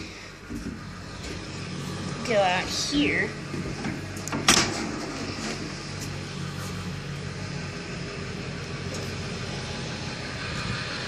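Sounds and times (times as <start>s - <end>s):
low mechanical hum: 0.0s - 11.0s
door latch clunk: 4.3s - 4.8s.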